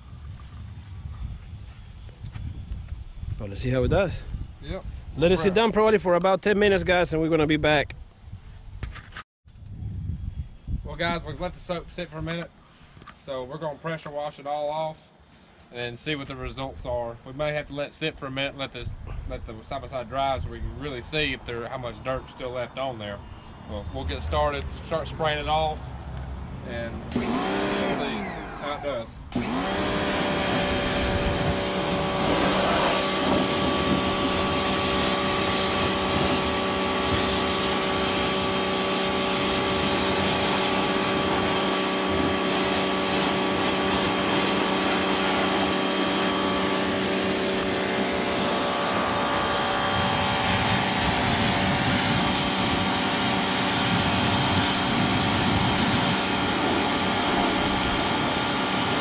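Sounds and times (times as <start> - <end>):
pressure washer pump humming: 27.1 - 59.0
high-pressure water jet hissing: 27.2 - 59.0.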